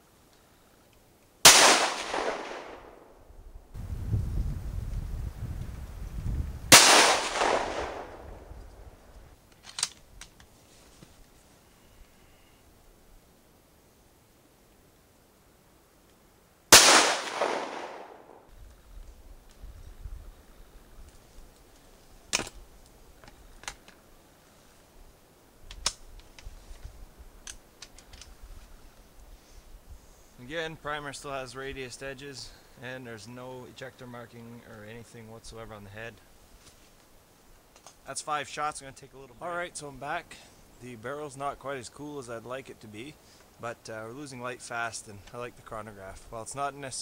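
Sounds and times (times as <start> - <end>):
rifle shot: 1.4 - 3.2, 6.7 - 8.5, 16.7 - 18.5
rifle bolt clacking: 9.6 - 10.5.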